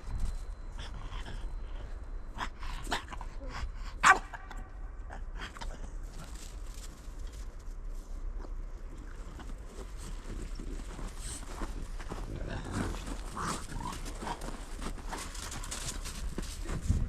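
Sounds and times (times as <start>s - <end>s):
loud dog bark: 4.0s - 4.4s.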